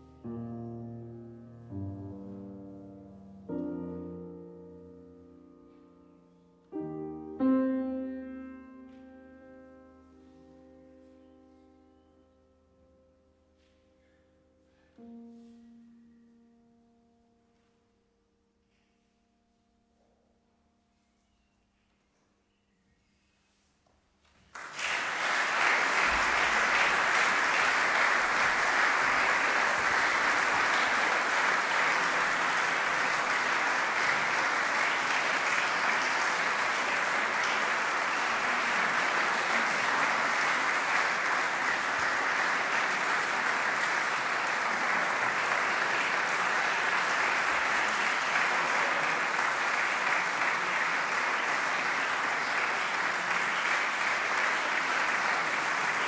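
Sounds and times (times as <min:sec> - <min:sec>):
audience applauding: 0:24.5 - 0:56.0.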